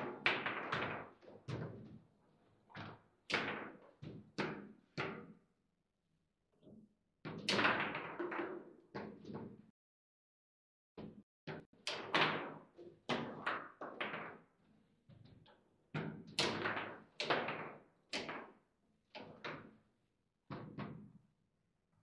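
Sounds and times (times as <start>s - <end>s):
table football knocks and clacks: 0.0s - 5.5s, 7.3s - 9.7s, 11.0s - 14.5s, 15.1s - 21.2s.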